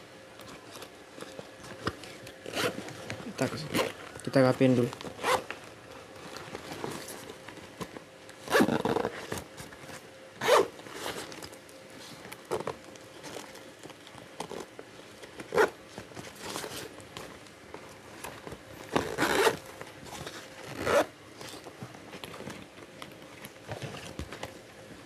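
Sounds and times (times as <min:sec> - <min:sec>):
bag fabric rustling: 0:00.5 - 0:11.7, 0:12.4 - 0:24.4
zipper pulled: 0:02.4 - 0:02.9, 0:03.6 - 0:04.0, 0:05.1 - 0:05.5, 0:08.5 - 0:09.4, 0:10.4 - 0:11.3, 0:15.5 - 0:15.8, 0:18.8 - 0:19.6, 0:20.6 - 0:21.1.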